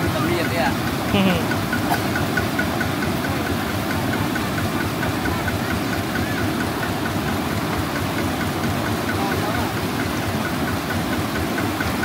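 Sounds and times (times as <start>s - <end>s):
small engine idling: 0.0s - 12.0s.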